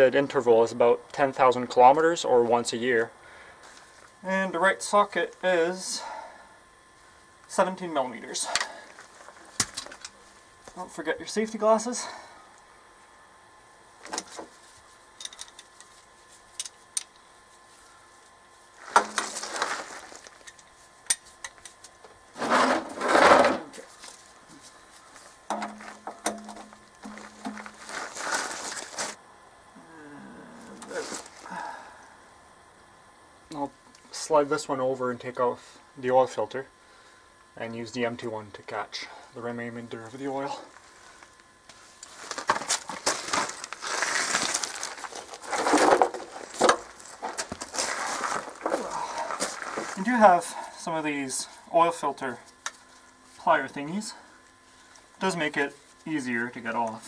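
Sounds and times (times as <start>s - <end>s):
gravel crunching and scraping: 18.7s - 20.4s, 22.4s - 29.2s, 40.4s - 50.5s
plastic pan sliding on gravel: 18.8s - 20.3s, 27.6s - 29.2s, 42.1s - 50.0s.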